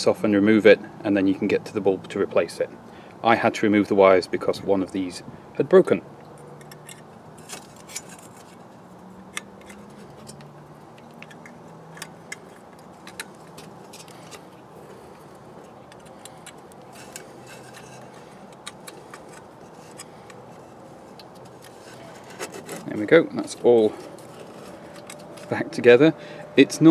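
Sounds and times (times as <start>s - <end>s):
small metallic clicks and taps: 6.2s - 8.6s, 9.3s - 14.4s, 15.6s - 22.0s, 24.0s - 25.5s.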